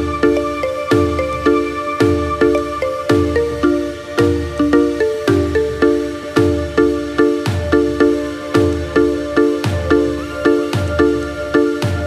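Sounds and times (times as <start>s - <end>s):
pulsing electronic chords: 0.0s - 12.0s.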